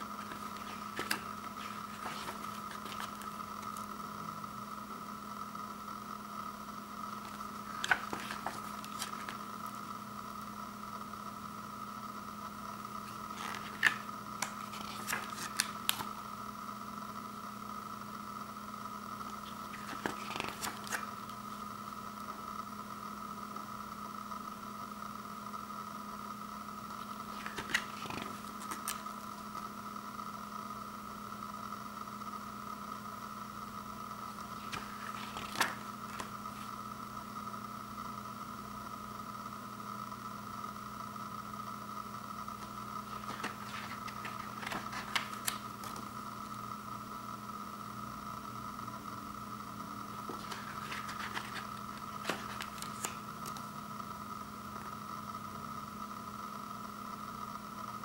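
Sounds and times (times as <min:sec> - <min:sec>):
comic book pages turning: 0:00.0 - 0:04.0, 0:07.2 - 0:09.6, 0:13.0 - 0:16.2, 0:19.2 - 0:21.4, 0:27.0 - 0:29.4, 0:34.3 - 0:36.8, 0:42.6 - 0:46.2, 0:50.2 - 0:53.7
steady electrical hum: 0:00.0 - 0:58.0.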